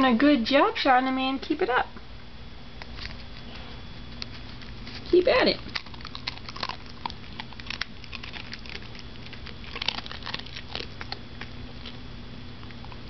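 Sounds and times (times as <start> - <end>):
dog crunching kibble: 2.8 - 3.5, 4.1 - 13.0.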